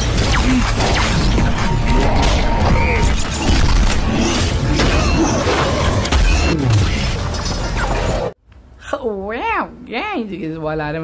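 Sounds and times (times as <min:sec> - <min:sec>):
action soundtrack music: 0:00.0 - 0:08.3.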